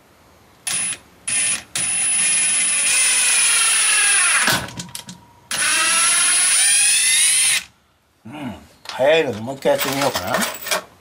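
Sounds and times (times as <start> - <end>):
drill motor whine: 0.7 - 4.5, 5.5 - 7.7.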